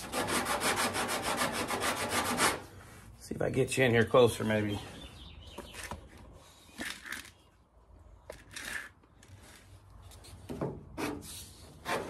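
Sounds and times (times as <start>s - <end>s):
sanding block on metal: 0.0s - 2.6s
handling rubs and scrapes: 8.3s - 12.0s.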